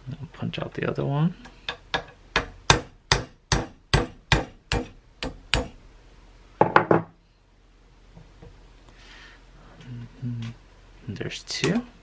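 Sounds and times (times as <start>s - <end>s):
mallet tapping a metal punch: 1.7s - 5.8s.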